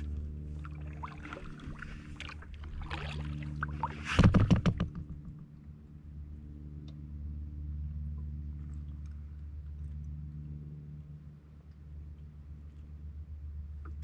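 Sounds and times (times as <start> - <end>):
paddle splashing in water: 0.0 - 5.4
steady low hum: 0.0 - 14.0
loud knocks: 4.1 - 5.4.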